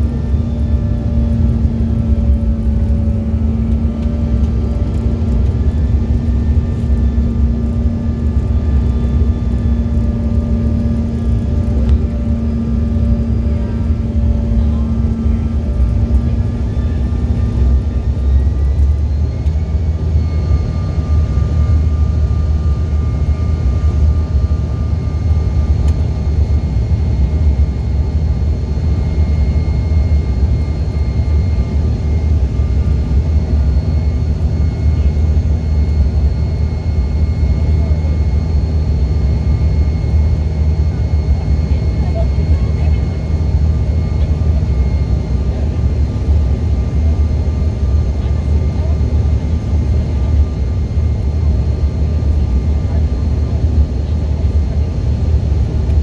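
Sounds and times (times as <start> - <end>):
high engine whines: 0.0 - 56.0
jet cabin roar: 0.0 - 56.0
low hum: 0.0 - 56.0.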